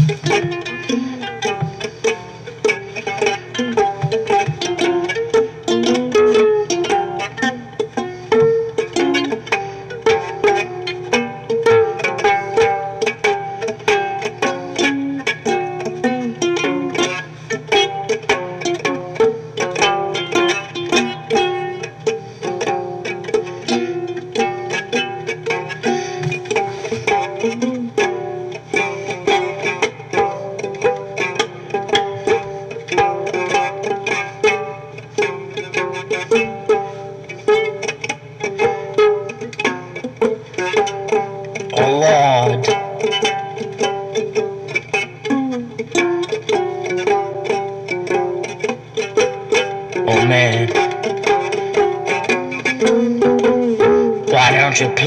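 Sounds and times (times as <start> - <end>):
plucked string notes: 0.0 - 55.0.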